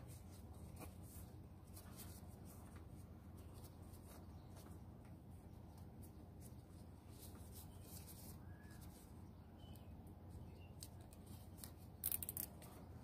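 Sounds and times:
faint bird chirps: 7.5s - 10.9s
wire rustling and clicking: 10.8s - 13.0s.

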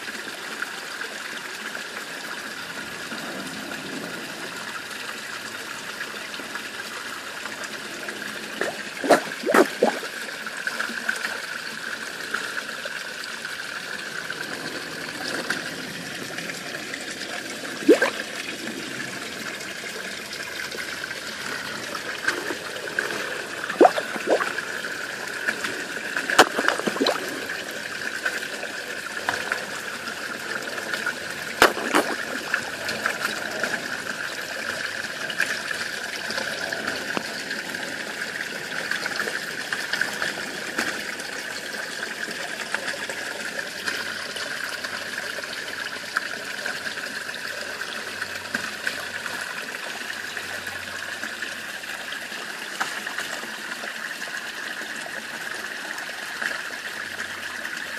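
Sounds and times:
water trickling into pond: 0.0s - 57.9s
fish splashing at surface: 8.6s - 10.2s, 17.8s - 18.3s, 23.7s - 27.6s, 31.6s - 32.6s.

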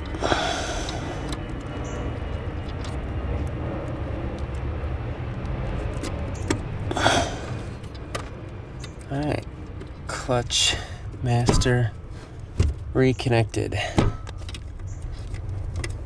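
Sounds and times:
steady low rumble: 0.0s - 16.0s
small metal clicks: 14.1s - 16.0s.

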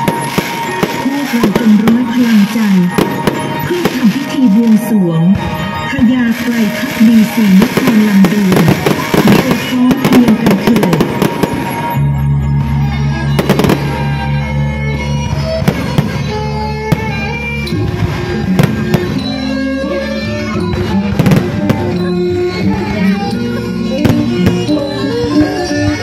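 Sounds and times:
fireworks crackling and popping: 0.0s - 12.0s, 13.3s - 14.3s, 15.3s - 19.5s, 20.7s - 22.1s
loud music: 0.0s - 26.0s.

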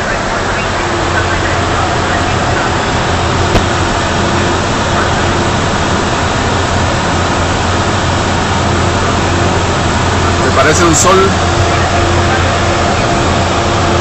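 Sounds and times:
airflow and jet engines rushing: 0.0s - 14.0s
airliner cabin noise: 0.0s - 14.0s
constant low hum: 0.0s - 14.0s.

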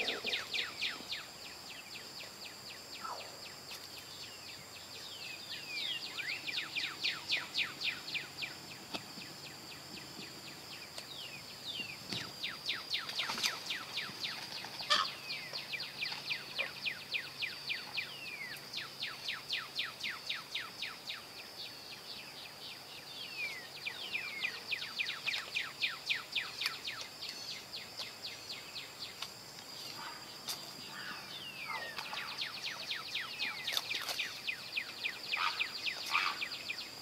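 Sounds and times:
high insect drone: 0.0s - 37.0s
small bird whistling song: 30.9s - 37.0s.

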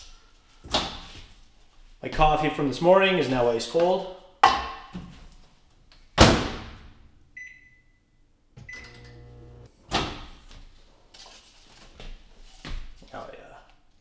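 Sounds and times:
microwave humming: 8.6s - 9.7s.

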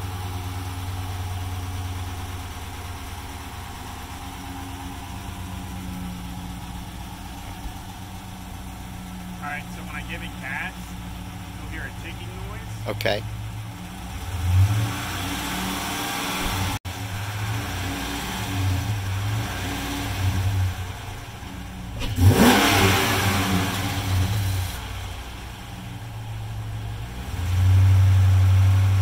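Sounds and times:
engine idling and revving: 0.0s - 29.0s
engine ticking: 0.0s - 29.0s.

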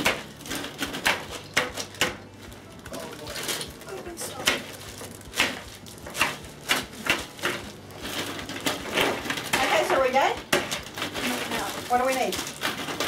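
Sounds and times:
plastic bags crinkling: 0.0s - 13.0s
ice knocking in bag: 2.9s - 13.0s.

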